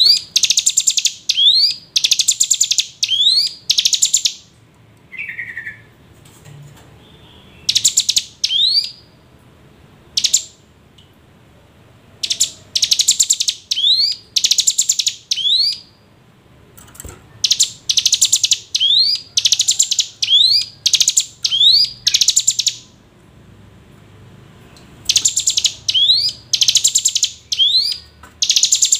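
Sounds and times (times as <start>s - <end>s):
bird chattering trills: 17.4s - 22.9s, 25.1s - 28.9s.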